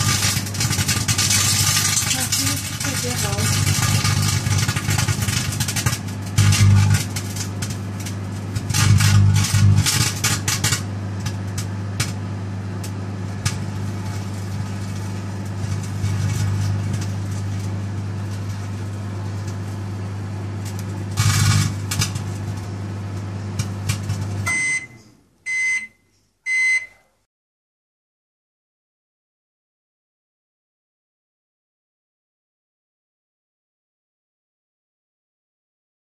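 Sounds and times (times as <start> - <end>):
crackling sparks from arcing: 0.0 - 24.4
microwave oven humming: 0.0 - 27.2
microwave beeps: 6.4 - 6.9, 24.4 - 27.0.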